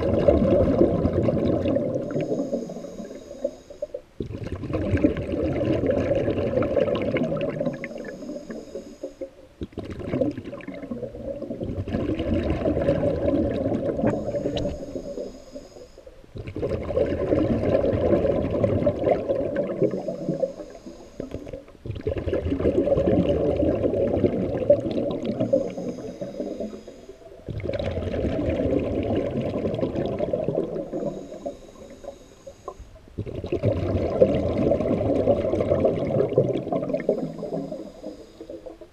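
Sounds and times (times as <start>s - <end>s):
gush of exhaled bubbles: 0.0s - 2.6s, 4.2s - 8.4s, 9.7s - 14.7s, 16.4s - 20.4s, 21.3s - 26.8s, 27.4s - 31.4s, 33.2s - 38.9s
regulator hiss on inhale: 1.9s - 4.0s, 7.6s - 9.5s, 13.8s - 16.3s, 19.5s - 21.8s, 25.2s - 27.5s, 30.2s - 33.1s, 36.7s - 38.9s.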